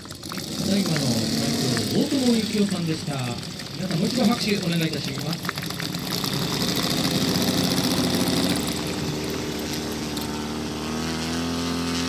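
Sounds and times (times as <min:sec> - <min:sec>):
model airplane engine idling: 0:00.0 - 0:12.0.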